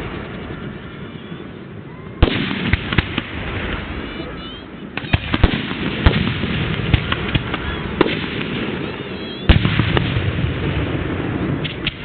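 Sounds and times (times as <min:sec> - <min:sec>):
firework crackle: 0:00.0 - 0:12.0
firework shells bursting: 0:05.0 - 0:12.0.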